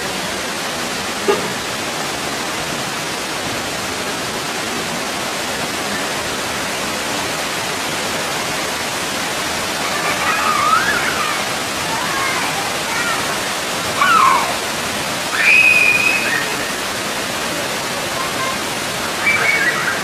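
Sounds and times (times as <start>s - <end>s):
faint high wavering calls: 9.9s - 12.3s, 14.0s - 14.7s, 15.3s - 17.0s, 19.0s - 20.0s.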